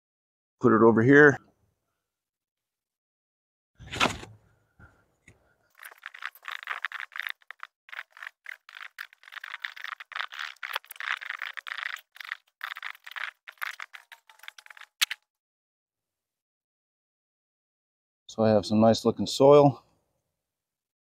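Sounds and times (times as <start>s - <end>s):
sharp clatter: 5.7s - 15.2s
soil rattling on wire mesh screen: 5.7s - 15.2s.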